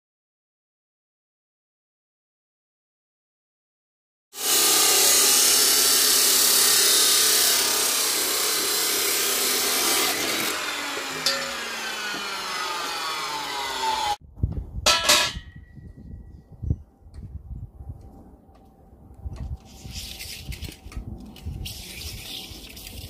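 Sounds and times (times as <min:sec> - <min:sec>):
chop saw grinding through steel: 0:04.4 - 0:14.2
spinning disc winding down: 0:10.2 - 0:14.2.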